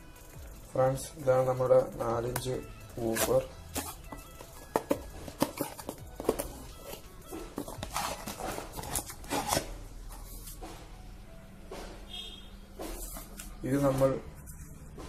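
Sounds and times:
handling knocks and rubbing: 2.0 - 11.0.

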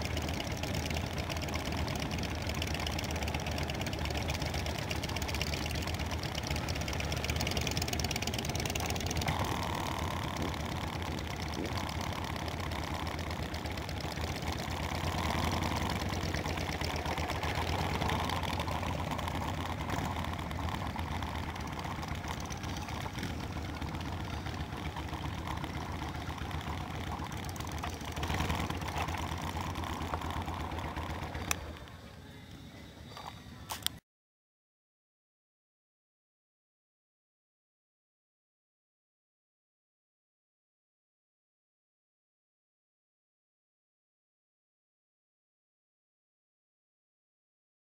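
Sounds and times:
motorcycles idling and pulling away: 0.0 - 34.0.

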